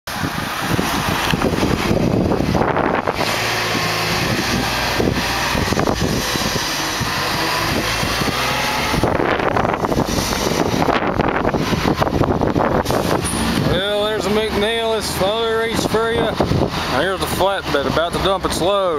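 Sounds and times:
truck engine running: 0:00.1 - 0:18.9
wind buffeting microphone: 0:00.1 - 0:18.9.

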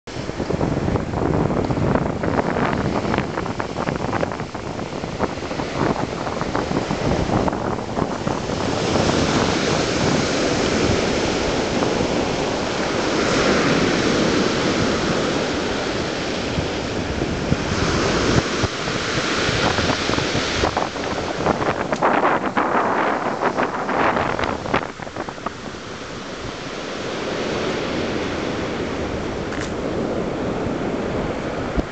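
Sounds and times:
wind buffeting microphone: 0:00.1 - 0:31.9
surf breaking on shingle beach: 0:01.8 - 0:31.9.

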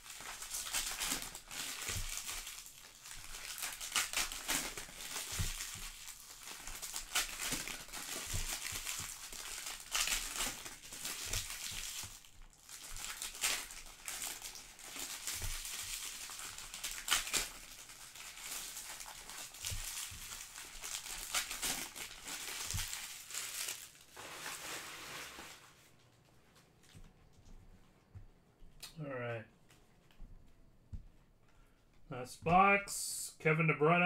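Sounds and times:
card pack wrappers crinkling: 0:00.0 - 0:27.0.

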